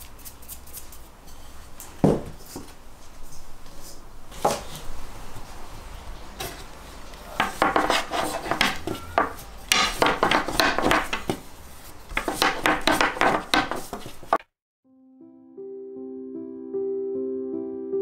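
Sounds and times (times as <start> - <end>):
rolling pin rolling on countertop: 7.3 - 14.4.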